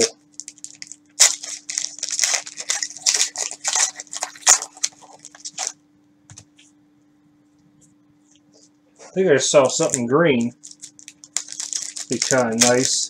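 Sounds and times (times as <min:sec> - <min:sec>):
plastic wrapper crinkling and tearing: 0:00.0 - 0:05.8, 0:09.7 - 0:13.0.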